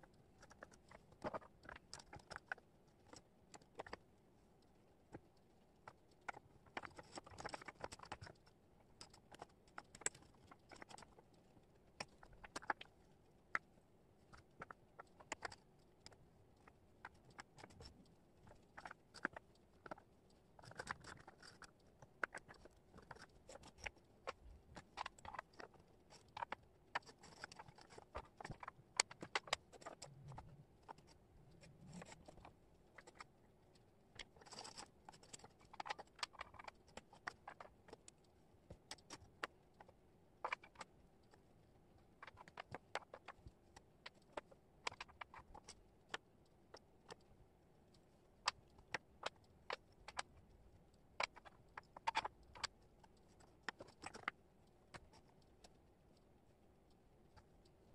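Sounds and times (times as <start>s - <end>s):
wooden puzzle pieces clicking: 5.8s - 8.4s, 9.0s - 11.3s, 14.3s - 20.0s, 20.6s - 38.2s, 38.8s - 41.3s, 42.2s - 47.3s, 48.4s - 50.4s, 51.2s - 55.8s.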